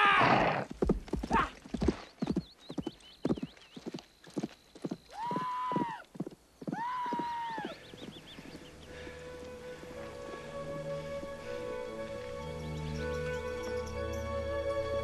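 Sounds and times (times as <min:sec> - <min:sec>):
horse hoofbeats galloping: 0:00.5 - 0:09.1
long high calls: 0:05.1 - 0:14.4.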